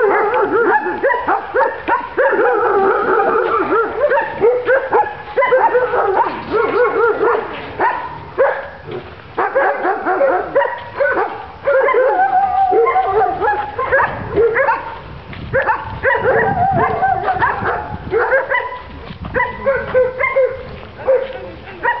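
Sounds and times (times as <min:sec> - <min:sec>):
dog yipping and whining: 0:00.0 - 0:08.7, 0:09.5 - 0:14.8, 0:15.6 - 0:18.8.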